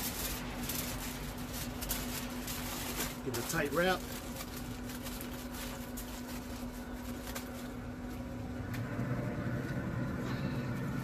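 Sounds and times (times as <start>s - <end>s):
aluminium foil crinkling: 0.0s - 8.5s
smoker fan humming: 0.0s - 11.0s.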